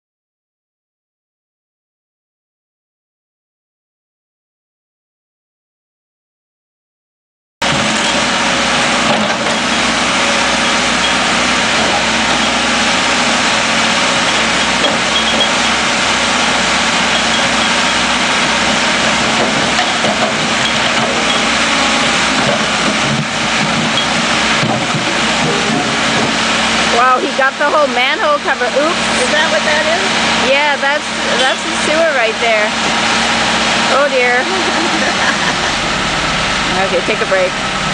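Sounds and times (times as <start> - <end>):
backhoe diesel engine running: 7.6 - 37.9.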